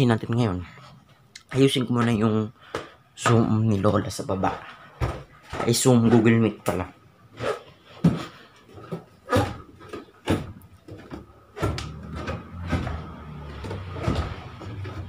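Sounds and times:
knocks and thumps: 4.9s - 6.8s, 7.9s - 15.0s.

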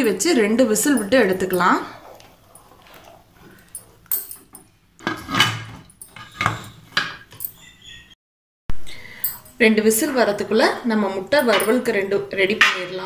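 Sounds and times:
spatula stirring in a pot: 0.1s - 4.1s
metal clanks and scrapes: 1.4s - 7.5s.

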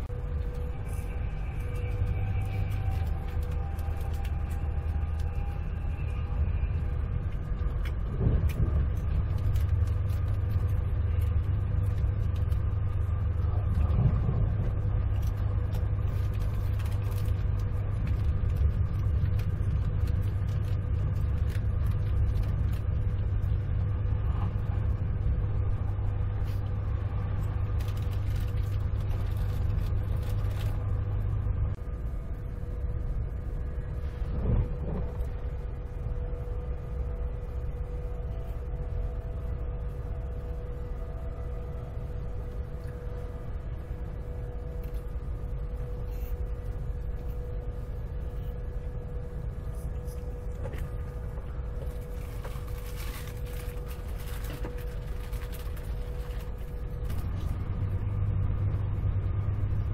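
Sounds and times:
train wheels rumbling on rail: 0.0s - 58.0s
constant hum: 0.0s - 59.9s.

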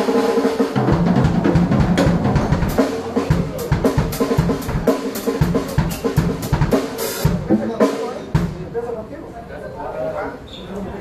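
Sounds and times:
cymbal crashes: 0.0s - 8.6s
snare and tom fills: 0.0s - 8.7s
bass drum kicks: 0.8s - 6.7s.

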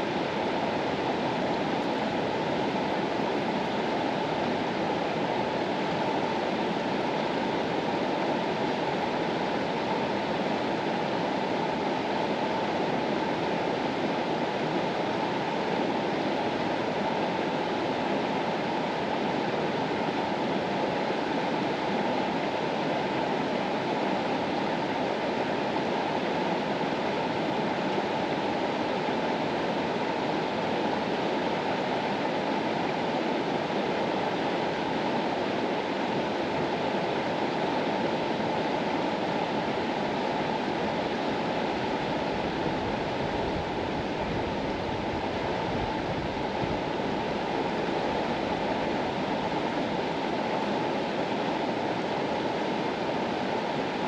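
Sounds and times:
river water rushing: 0.0s - 54.0s.

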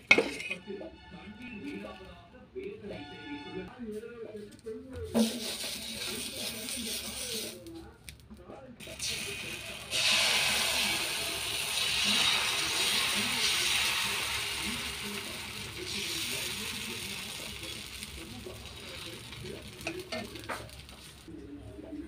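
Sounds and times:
batter sizzling on a hot griddle: 5.2s - 7.6s, 8.8s - 21.3s.

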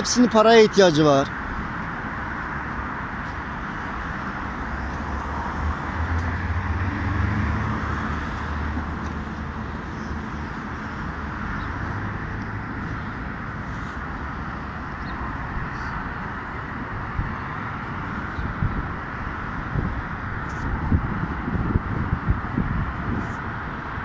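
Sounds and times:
traffic rumble: 0.0s - 24.0s
vehicle engine passing: 1.5s - 23.7s.

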